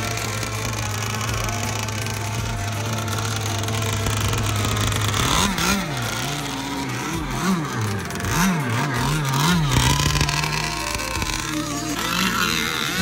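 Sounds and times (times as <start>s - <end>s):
small two-stroke engine revving: 0.0s - 13.0s.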